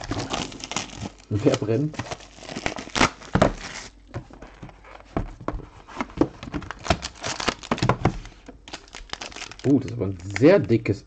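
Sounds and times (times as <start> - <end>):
plastic shrink-wrap crinkling: 0.0 - 4.0, 6.4 - 10.7.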